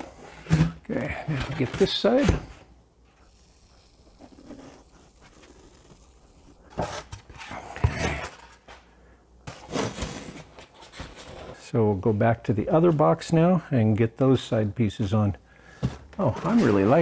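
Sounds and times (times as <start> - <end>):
styrofoam boxes scraping: 0.0 - 2.7, 9.5 - 11.6, 15.7 - 17.0.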